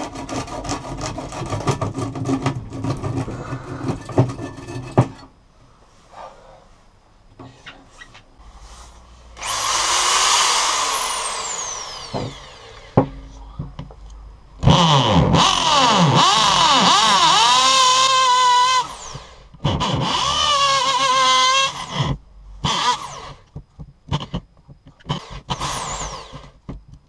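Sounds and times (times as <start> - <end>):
electric drill boring into wood: 9.4 - 13.0, 14.6 - 23.5, 25.1 - 26.6.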